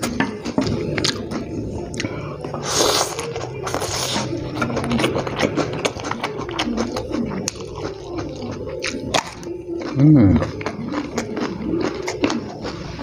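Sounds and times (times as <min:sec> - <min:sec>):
wet chewing and lip smacks: 0:00.5 - 0:12.8
man slurping noodles: 0:01.9 - 0:04.4.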